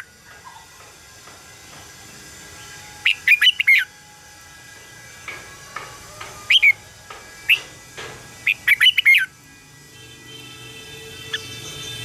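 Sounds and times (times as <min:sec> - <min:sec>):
bulbul singing whistled notes: 0:08.5 - 0:09.3.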